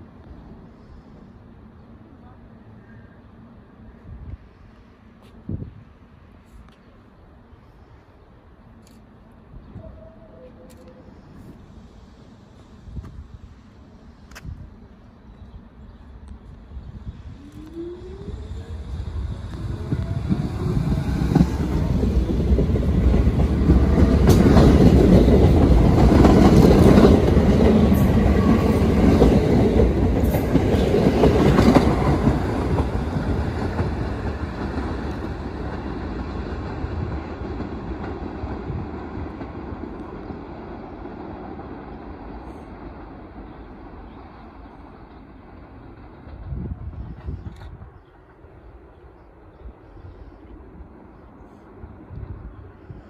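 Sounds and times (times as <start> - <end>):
train wheels rumbling and clicking: 17.5 - 41.8.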